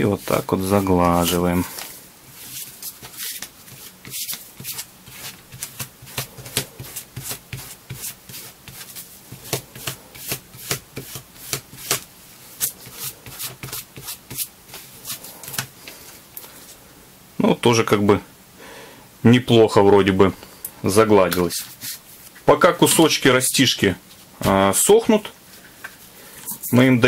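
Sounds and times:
hand tool rubbing on leather: 0.0s - 1.8s.

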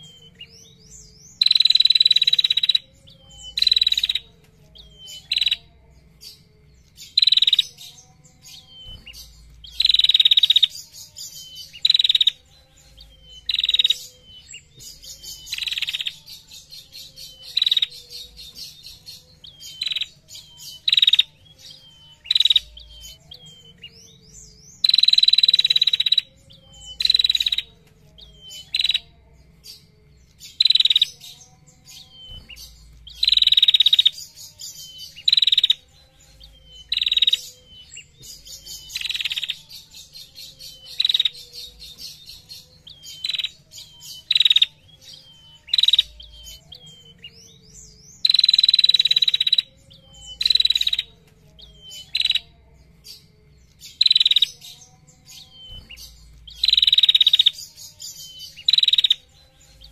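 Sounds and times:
songbird chattering trills: 8.6s - 16.2s, 48.2s - 52.5s, 55.4s - 57.6s.

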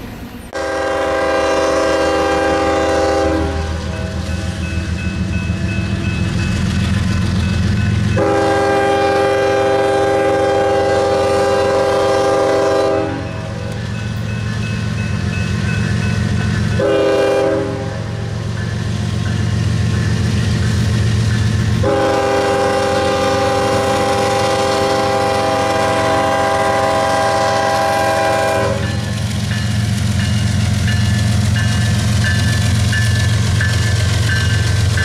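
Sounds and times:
diesel locomotive engine throbbing: 0.0s - 35.0s
train horn blasts: 0.5s - 4.8s, 8.1s - 13.8s, 16.7s - 18.3s, 21.8s - 29.2s
faint crossing bell ringing: 13.2s - 17.0s, 28.8s - 35.0s.

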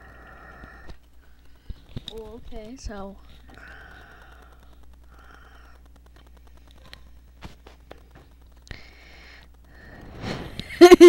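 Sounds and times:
low steady hum: 0.0s - 11.0s
handling rustles and clicks: 0.9s - 8.7s.

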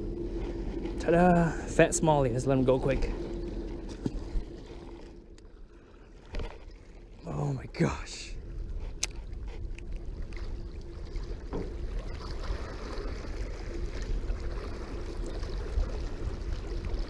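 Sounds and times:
faint steady hum: 0.0s - 17.0s
waves lapping against rocks: 8.6s - 17.0s.

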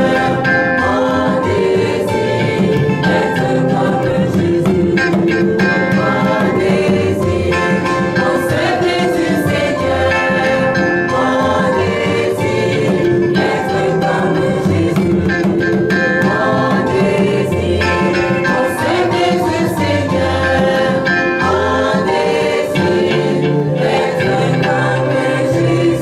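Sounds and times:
choir singing a hymn: 0.0s - 26.0s.

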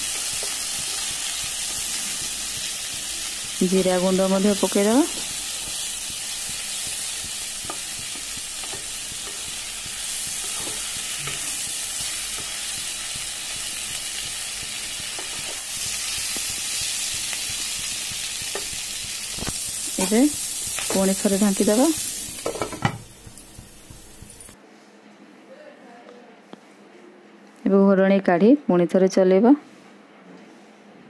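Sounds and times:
vegetables sizzling in oil: 0.0s - 24.6s.

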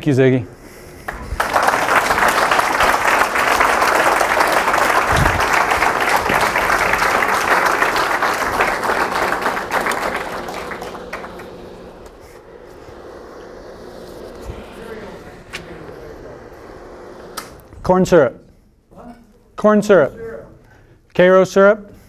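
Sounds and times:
audience applauding: 1.0s - 17.7s.

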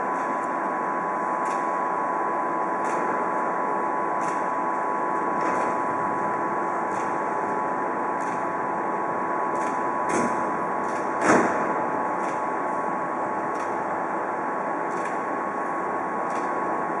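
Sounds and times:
sharp knocks: 11.2s - 11.7s.

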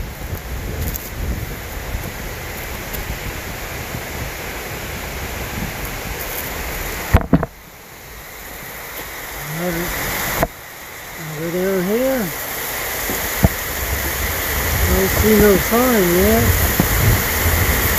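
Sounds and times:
waterfall and creek rushing: 0.0s - 17.9s
man's voice: 9.4s - 10.0s, 11.2s - 12.4s, 14.8s - 16.6s.

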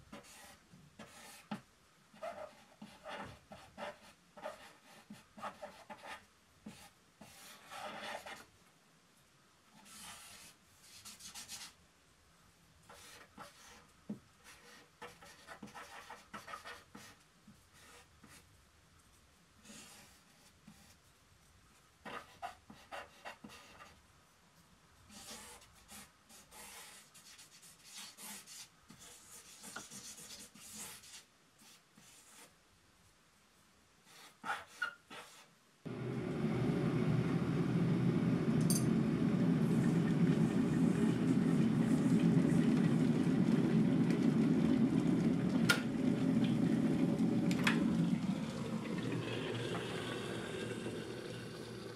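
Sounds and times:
drawing tool scratching on paper: 2.2s - 8.5s, 9.8s - 11.8s, 12.9s - 18.4s, 22.0s - 24.0s, 25.1s - 32.5s, 34.1s - 35.5s.

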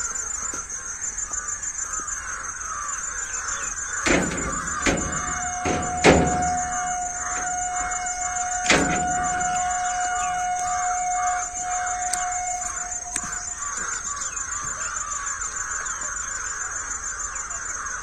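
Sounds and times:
crows cawing: 0.7s - 18.0s
steady tone: 4.0s - 14.2s.

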